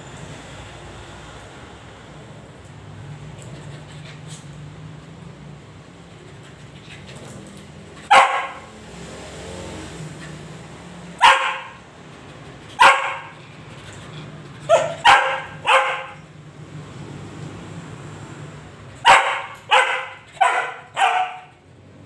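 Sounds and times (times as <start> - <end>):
small dog barking: 8.1 - 8.7, 11.2 - 11.8, 12.8 - 13.4, 14.7 - 16.2, 19.0 - 21.6.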